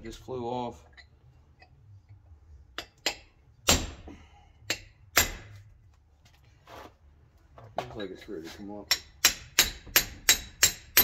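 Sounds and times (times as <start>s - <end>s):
hammer striking chisel on metal: 2.8s - 5.6s, 8.8s - 11.0s.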